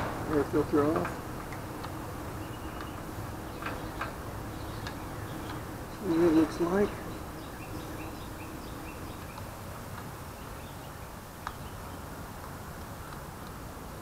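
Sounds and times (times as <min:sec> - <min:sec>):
steady low background noise: 0:00.0 - 0:14.0
small bird chirping: 0:01.7 - 0:12.1.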